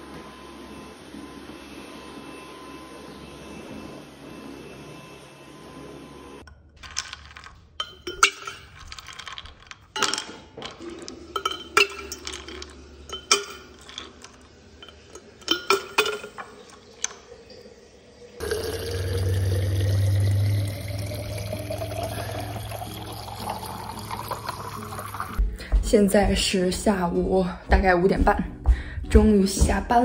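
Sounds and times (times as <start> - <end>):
water dispenser hum: 0.0 - 25.5
ice cubes clinking in metal bottle: 6.8 - 17.2
water filling a bottle: 10.5 - 25.4
stick vacuum running: 18.4 - 24.7.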